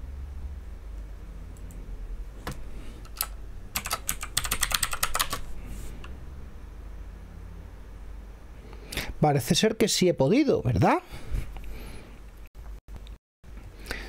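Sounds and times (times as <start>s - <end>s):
low steady hum: 0.0s - 14.0s
keyboard typing: 2.4s - 6.1s.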